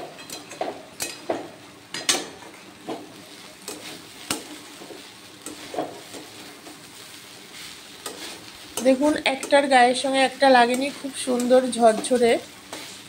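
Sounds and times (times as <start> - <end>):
faint sizzle: 0.0 - 13.0
spatula scraping a pan: 3.4 - 9.7, 10.6 - 13.0.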